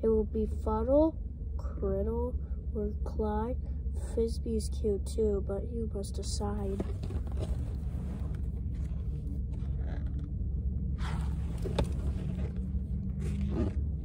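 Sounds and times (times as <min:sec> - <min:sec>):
low rumble inside a car: 0:00.0 - 0:14.0
book pages turning: 0:11.0 - 0:13.8.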